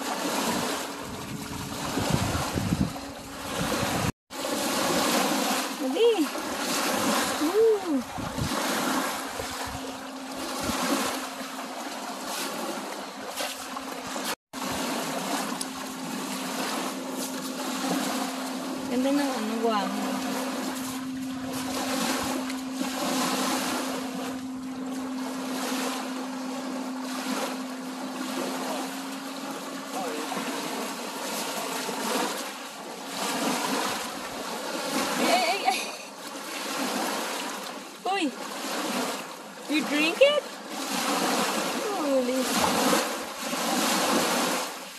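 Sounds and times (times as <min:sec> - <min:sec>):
steady low hum: 0:00.0 - 0:36.4
wading through water: 0:00.0 - 0:44.9
water lapping at shore: 0:00.0 - 0:44.9
wind noise: 0:00.3 - 0:04.1, 0:06.8 - 0:11.1.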